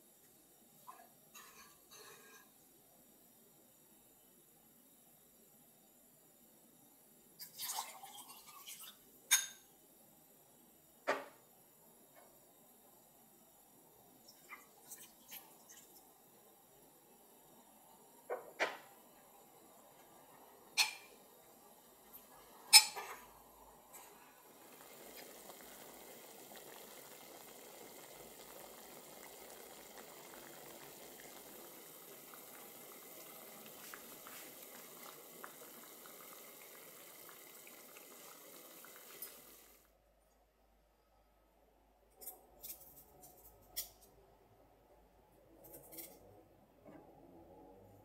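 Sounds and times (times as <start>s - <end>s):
marinade bubbling in pot: 19.0s - 39.8s.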